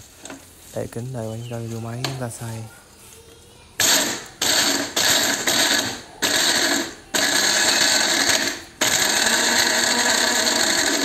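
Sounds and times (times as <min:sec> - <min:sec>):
electric blender grinding: 0:03.8 - 0:11.0.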